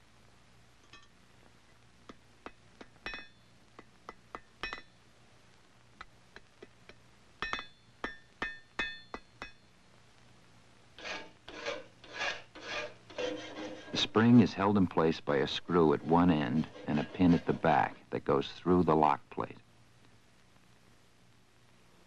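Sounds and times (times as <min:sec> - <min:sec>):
hammer striking metal on anvil: 0:02.5 - 0:03.4, 0:04.1 - 0:04.9, 0:07.4 - 0:09.6
file rasping: 0:11.0 - 0:14.5, 0:15.6 - 0:18.0.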